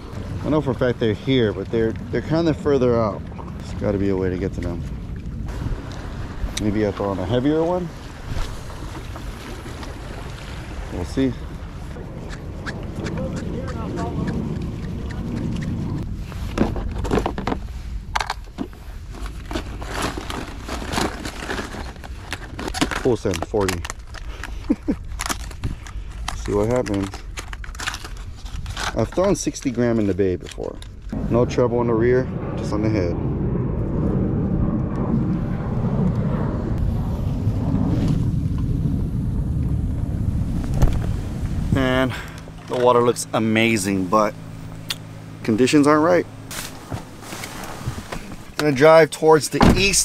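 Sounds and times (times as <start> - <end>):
wind buffeting microphone: 0.0 - 21.0, 30.2 - 48.6
plastic packages rattling and crinkling: 19.2 - 29.6.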